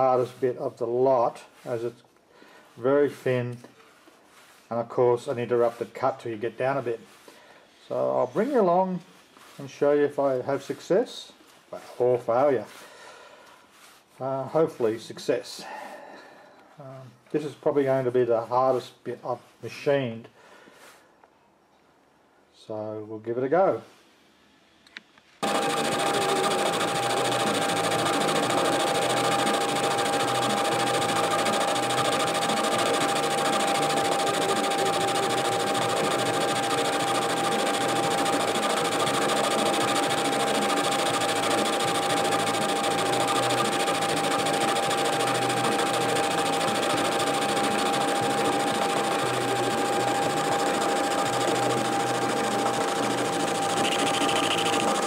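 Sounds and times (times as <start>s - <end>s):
cutting tool striking metal: 25.4s - 55.0s
metal lathe whining: 25.4s - 55.0s.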